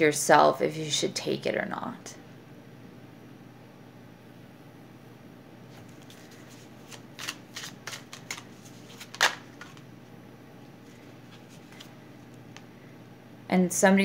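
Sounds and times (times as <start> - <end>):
cards being shuffled: 5.7 - 9.9, 10.8 - 12.7
sharp card snap: 6.9 - 9.8.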